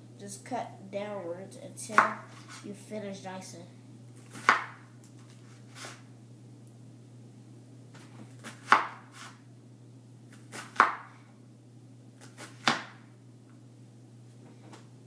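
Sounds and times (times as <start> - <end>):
knife chopping on wooden board: 4.3 - 4.8, 8.4 - 9.4, 10.3 - 11.1, 12.2 - 13.0.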